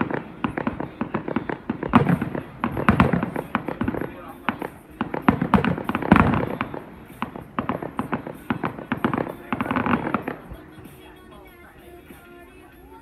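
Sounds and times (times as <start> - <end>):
fireworks bangs and crackles: 0.0 - 12.4.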